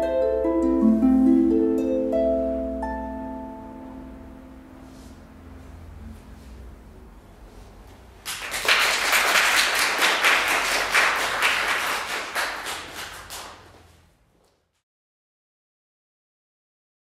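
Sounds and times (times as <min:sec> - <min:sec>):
applause: 0:08.2 - 0:13.9.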